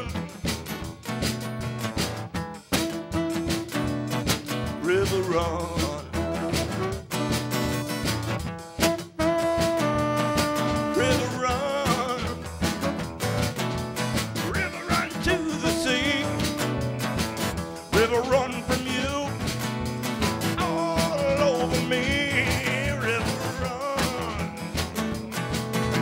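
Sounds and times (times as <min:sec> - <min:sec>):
drum kit beat: 0:00.0 - 0:26.0
strummed acoustic guitar: 0:00.0 - 0:26.0
tenor saxophone lead: 0:02.8 - 0:04.3, 0:06.1 - 0:07.5, 0:08.8 - 0:12.4, 0:15.5 - 0:17.2.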